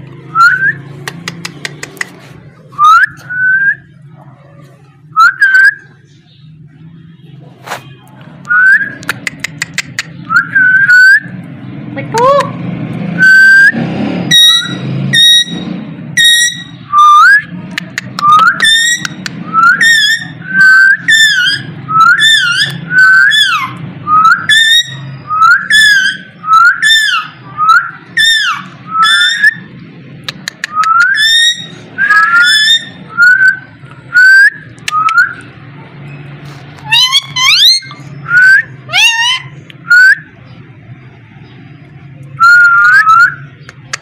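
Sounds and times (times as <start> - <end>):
parakeet calling: 14.3 - 17.3, 18.3 - 29.9, 30.6 - 35.4, 36.8 - 40.6.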